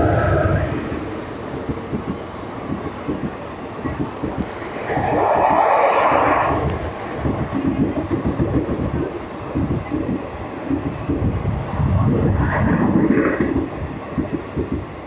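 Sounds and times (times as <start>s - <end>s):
rushing swell of passing train: 0.0s - 15.0s
train rumble: 0.0s - 15.0s.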